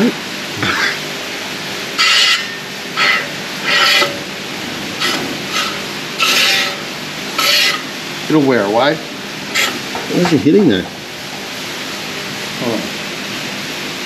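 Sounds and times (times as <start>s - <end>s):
brake rotor scraping: 2.0s - 8.0s, 9.5s - 10.8s.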